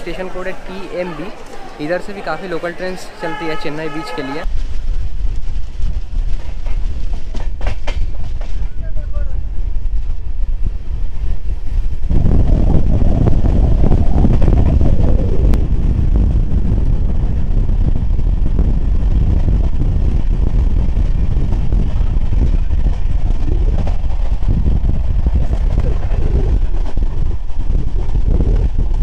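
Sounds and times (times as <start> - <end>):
train running: 4.4 - 12.4, 19.0 - 29.0.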